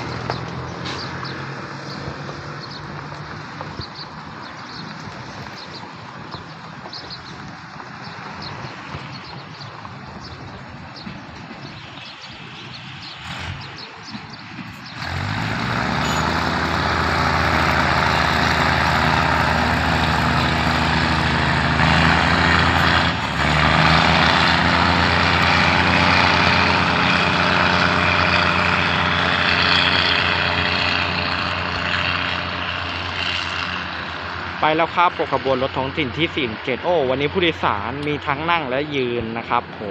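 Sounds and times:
train engine drone: 0:00.0 - 0:39.9
train wheels on rails: 0:04.7 - 0:34.6.

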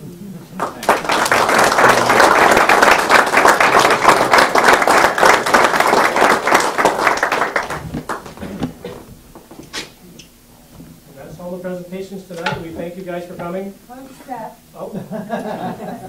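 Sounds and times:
people applauding: 0:00.6 - 0:08.7.

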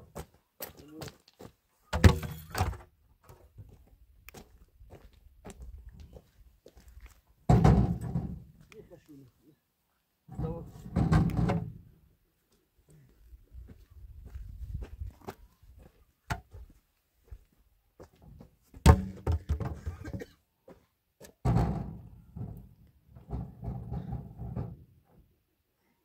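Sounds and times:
wooden poles knocking and thudding: 0:01.9 - 0:02.9, 0:07.5 - 0:08.5, 0:10.3 - 0:11.8, 0:18.2 - 0:20.3, 0:21.4 - 0:24.9.

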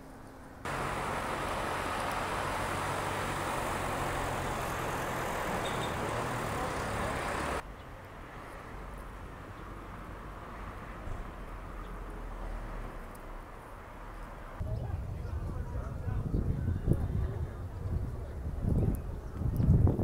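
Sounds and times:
road traffic noise: 0:00.0 - 0:14.8
low engine hum: 0:00.0 - 0:16.2.

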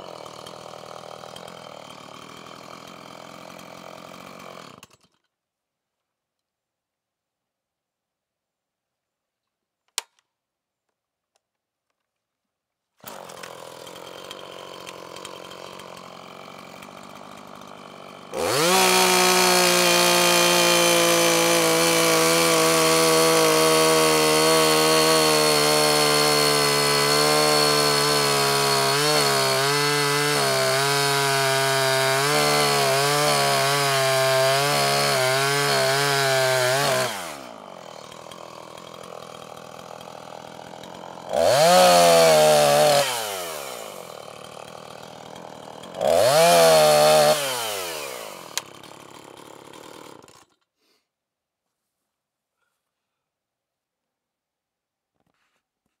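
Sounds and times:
chainsaw cutting log and revving: 0:00.0 - 0:05.2, 0:13.0 - 0:51.0.

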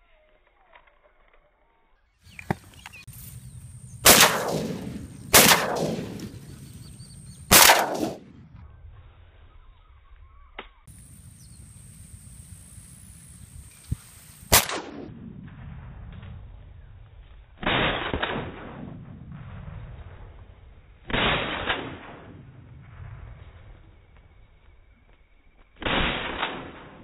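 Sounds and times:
shotgun shots echoing: 0:04.0 - 0:08.4, 0:14.5 - 0:15.1, 0:17.6 - 0:19.5, 0:21.1 - 0:22.6, 0:25.8 - 0:27.0.

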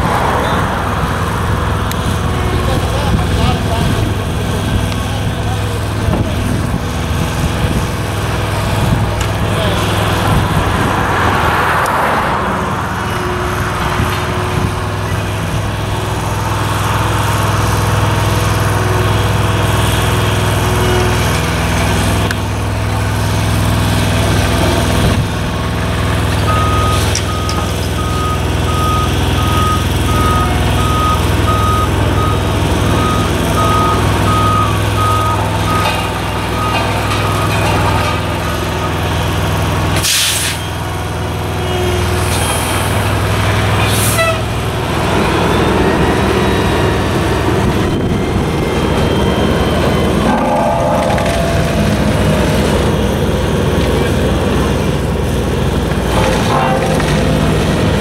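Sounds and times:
diesel engines running: 0:00.0 - 0:58.0
backup alarm beeping: 0:26.4 - 0:39.0, 0:47.6 - 0:53.6.

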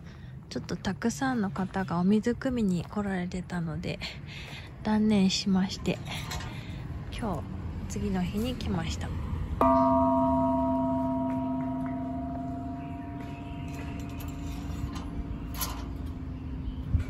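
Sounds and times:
temple bell ringing: 0:09.6 - 0:16.6.

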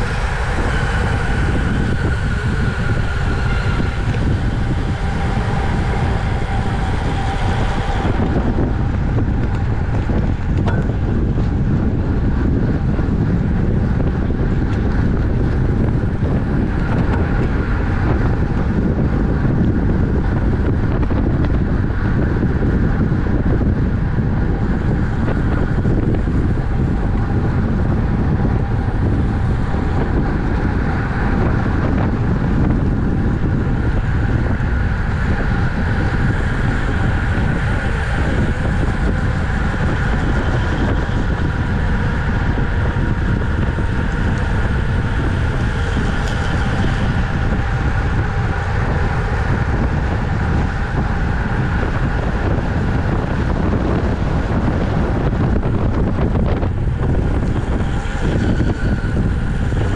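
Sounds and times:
wind rushing on microphone: 0:00.0 - 0:59.9.

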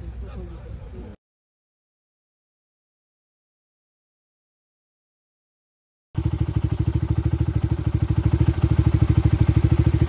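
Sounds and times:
motorcycle engine running at low revs: 0:06.2 - 0:10.0.

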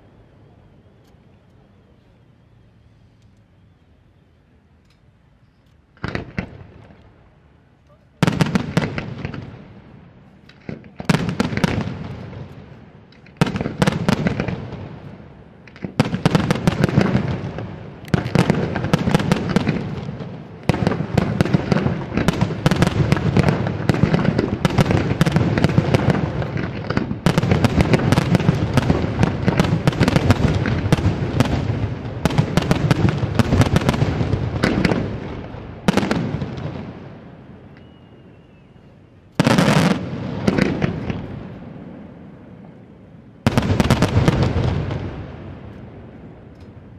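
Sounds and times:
fireworks bursting and crackling: 0:04.8 - 0:46.9.

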